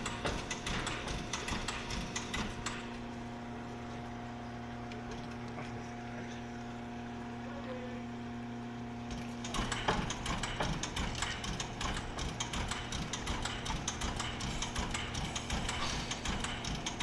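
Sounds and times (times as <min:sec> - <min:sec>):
rhythmic mechanical clattering: 0:00.0 - 0:03.1, 0:09.1 - 0:17.0.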